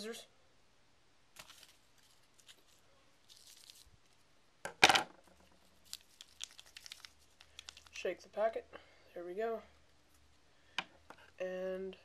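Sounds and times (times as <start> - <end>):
paper crinkling burst: 1.4 - 4.2, 5.8 - 8.0
paper packet rustling: 1.4 - 4.2, 5.6 - 8.0.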